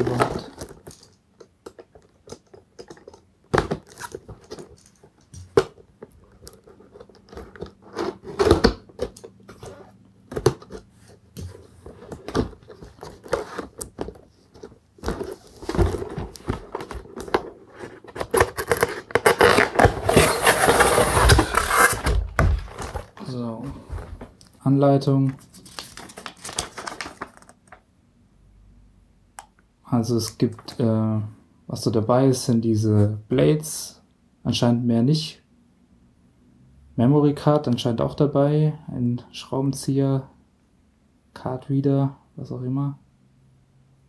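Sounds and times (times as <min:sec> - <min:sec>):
cardboard sliding rustle: 0:14.4 - 0:24.3
cardboard box clicks and scrapes: 0:15.1 - 0:23.1.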